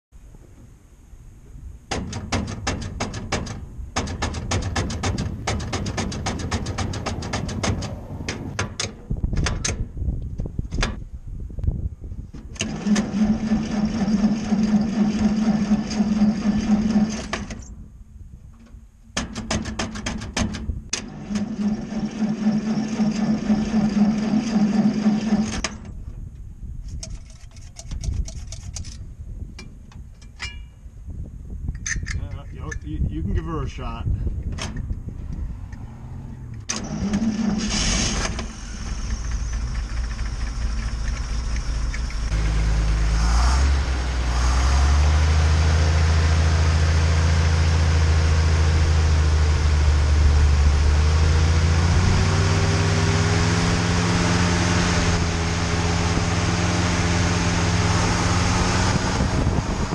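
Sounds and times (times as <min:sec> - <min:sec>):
truck engine cranking on starter: 0:02.0 - 0:09.9, 0:12.4 - 0:17.7, 0:20.5 - 0:26.0, 0:36.5 - 0:59.9.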